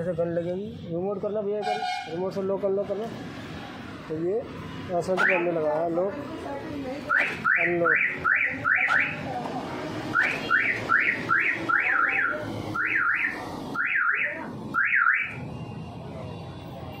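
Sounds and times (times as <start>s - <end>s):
car alarm siren chirps: 5.2s - 5.5s, 7.1s - 9.2s, 10.1s - 15.4s.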